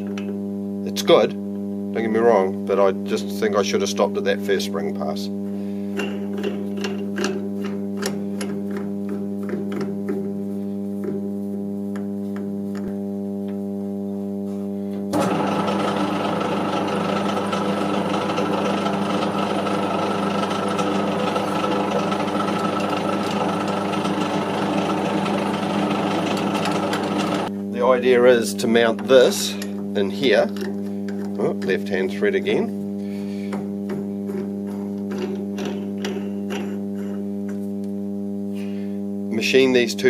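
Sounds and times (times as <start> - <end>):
metal lathe humming: 15.1 - 37.7.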